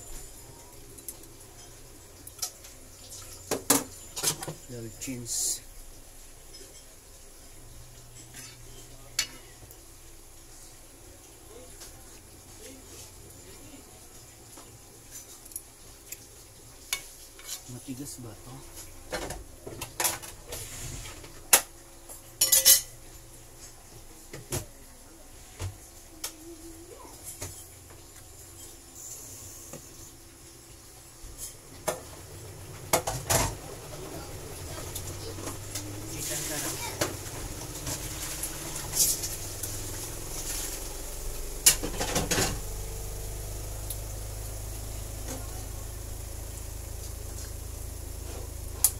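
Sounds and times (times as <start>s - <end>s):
curry simmering hum: 0.0s - 48.9s
crackles and pops: 37.0s - 48.9s.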